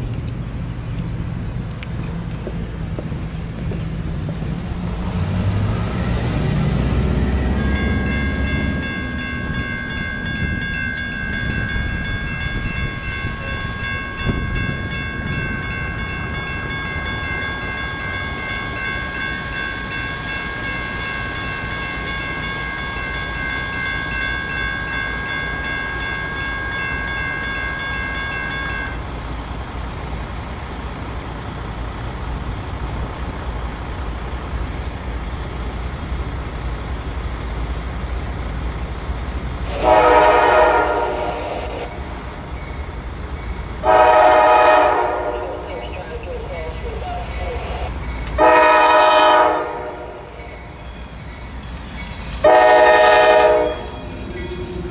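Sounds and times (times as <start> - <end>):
engine and rail rumble: 0.0 - 54.9
locomotive horn blasts: 39.7 - 41.9, 43.8 - 45.8, 48.4 - 50.4, 52.4 - 54.0.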